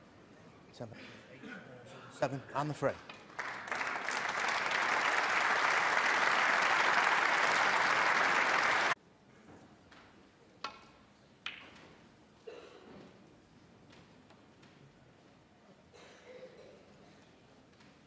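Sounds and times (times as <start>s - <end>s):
audience applauding: 3.3s - 9.0s.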